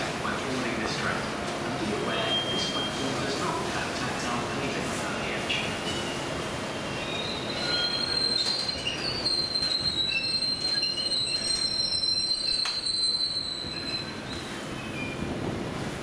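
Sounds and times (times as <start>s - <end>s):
train rolling: 0.0s - 16.0s
train wheels squealing: 6.9s - 15.3s.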